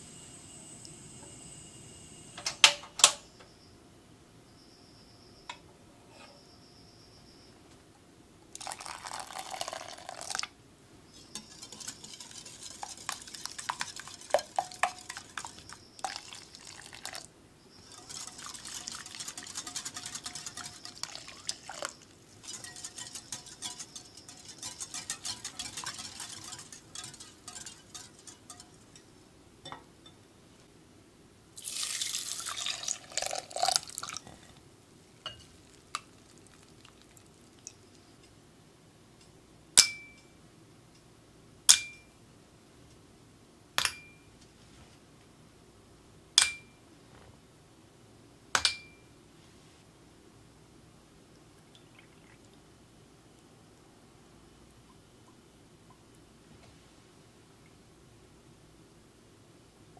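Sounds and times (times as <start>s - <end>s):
liquid pouring: 8.6s - 10.5s, 11.4s - 17.3s, 17.9s - 28.7s, 31.6s - 34.4s, 35.7s - 37.7s, 51.6s - 52.6s
whisk ticking against glass bowl: 11.2s - 30.2s.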